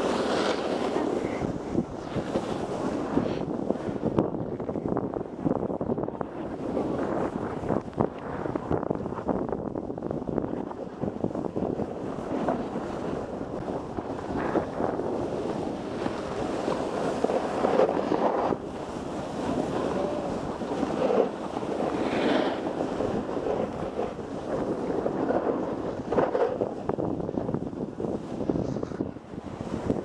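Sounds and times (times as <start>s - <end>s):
ski edges scraping snow: 0.0s - 3.5s, 14.2s - 18.6s, 19.2s - 26.9s, 28.4s - 29.2s
wind on microphone: 0.0s - 30.0s.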